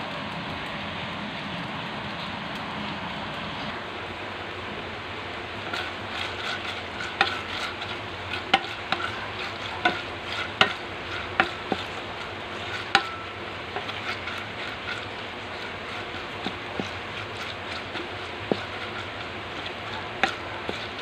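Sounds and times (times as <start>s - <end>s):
meat sizzling in a frying pan: 5.4s - 21.0s
spatula knocking and scraping pan: 5.6s - 21.0s.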